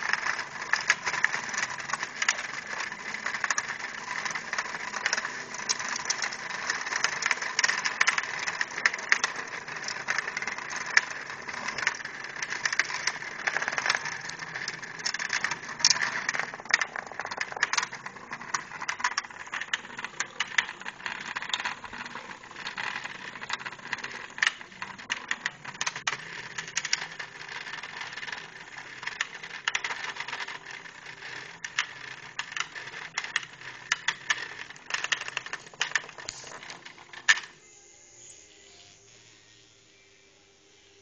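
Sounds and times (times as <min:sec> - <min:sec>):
micro-robots buzzing and clattering: 0:00.0 - 0:37.5.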